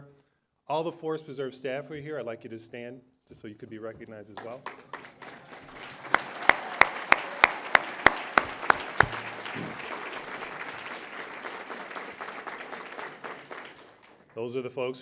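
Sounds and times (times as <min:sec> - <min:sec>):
audience applauding: 0:04.4 - 0:14.4
loud sharp claps: 0:04.4 - 0:14.4.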